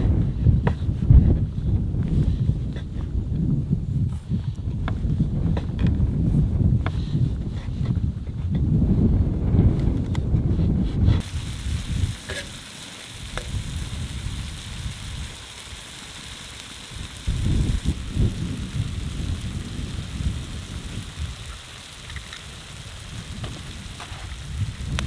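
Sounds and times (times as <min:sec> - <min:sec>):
wind rumble on microphone: 0:00.0 - 0:12.4, 0:13.2 - 0:15.6, 0:16.3 - 0:25.0
stew sizzling in a pan: 0:11.2 - 0:25.0.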